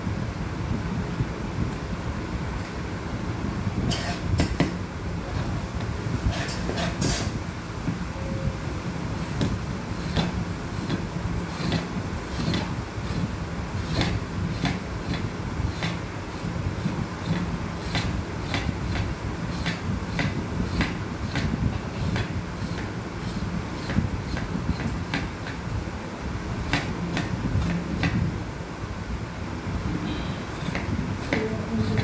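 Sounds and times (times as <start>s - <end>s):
steady low hum: 0.0s - 32.0s
knife scraping gourd skin: 30.5s - 32.0s.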